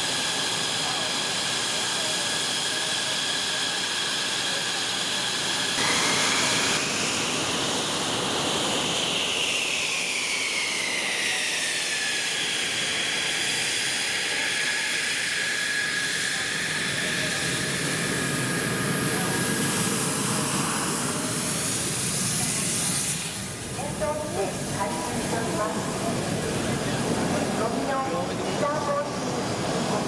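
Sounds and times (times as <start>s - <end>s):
jet engine whining: 0.0s - 30.0s
hiss: 0.1s - 23.6s.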